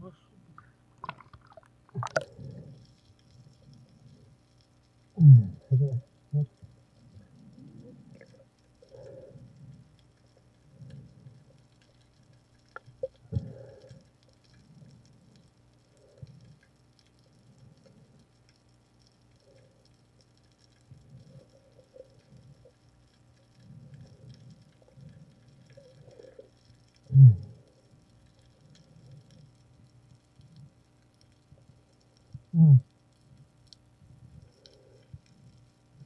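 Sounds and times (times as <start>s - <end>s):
faint steady hum: 0.0s - 36.0s
underwater thuds and swishes: 0.6s - 4.0s.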